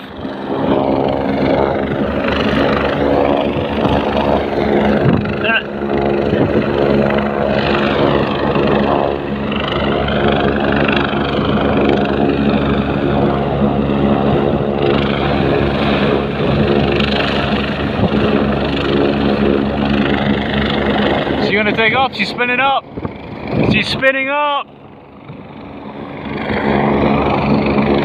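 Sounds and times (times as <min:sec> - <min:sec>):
helicopter engine and rotor drone: 0:00.0 - 0:28.0.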